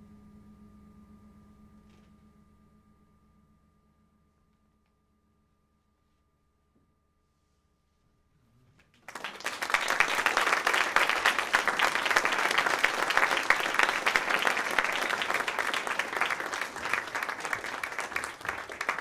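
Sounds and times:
audience applauding: 8.9 - 19.0.

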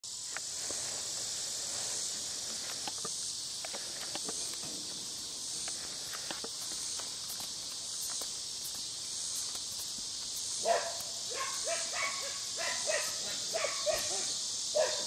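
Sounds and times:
high-pitched insect chorus: 0.0 - 15.0
horse tack clicking: 2.5 - 11.1.

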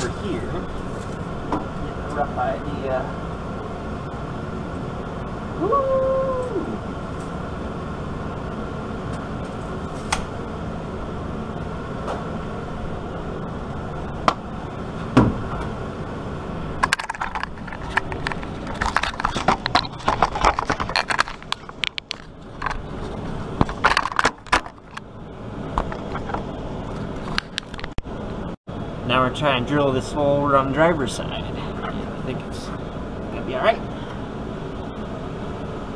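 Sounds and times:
low background hum: 0.0 - 35.9
rattling clicks and knocks: 16.8 - 25.1, 25.8 - 28.0.

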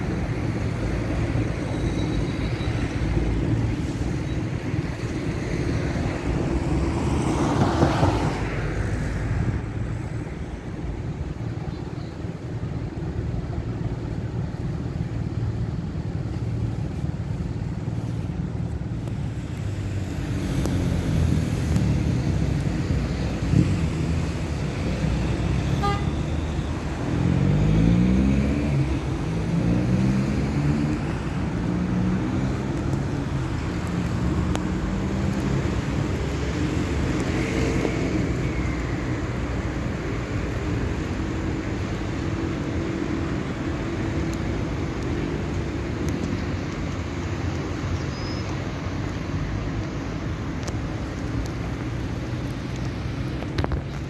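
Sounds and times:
rumble of passing cars: 0.0 - 54.0
vehicle passing close: 27.0 - 38.4.

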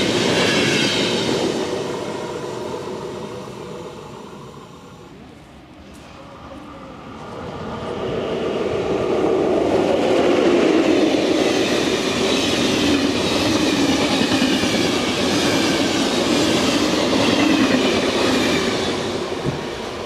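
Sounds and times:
train wheels clattering on rails: 9.6 - 20.0.

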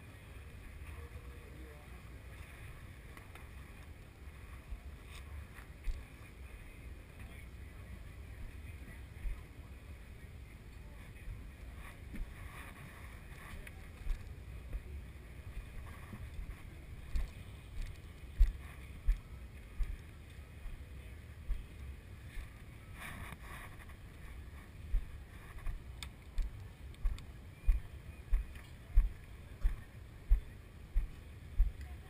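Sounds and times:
low thumps on microphone: 26.4 - 31.8.

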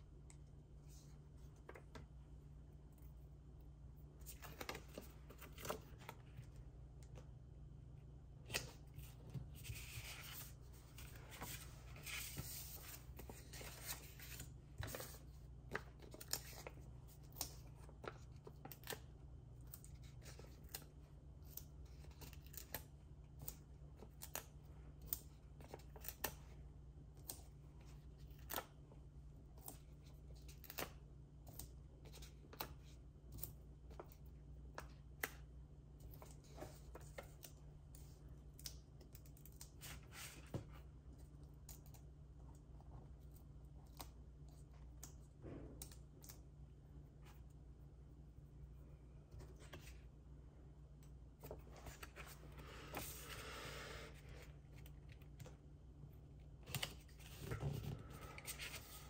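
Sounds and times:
paper rustling: 8.5 - 19.0, 56.6 - 59.0.

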